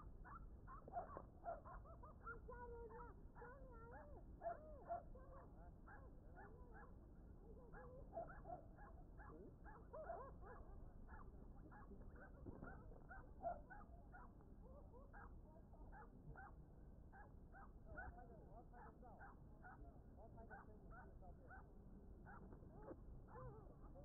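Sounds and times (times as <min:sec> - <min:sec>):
faint animal calls: 0:00.0 - 0:24.0
low steady background noise: 0:00.0 - 0:24.0.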